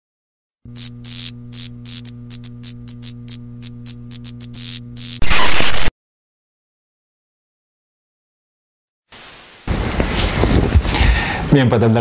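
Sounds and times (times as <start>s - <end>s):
electric hum with crackles: 0.7s - 5.9s
loud burst of static: 4.1s - 5.9s, 9.2s - 10.0s.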